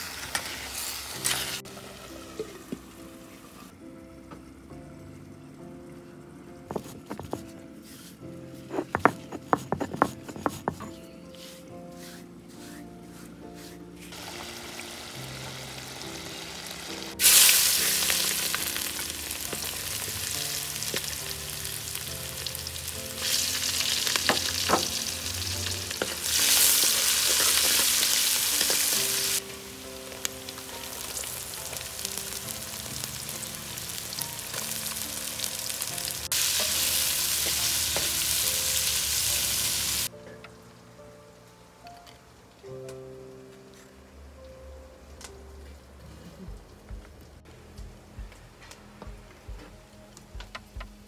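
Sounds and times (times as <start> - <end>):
garlic sizzling in hot oil: 0.0 - 3.7, 14.1 - 40.1
wooden spoon stirring: 6.7 - 13.8.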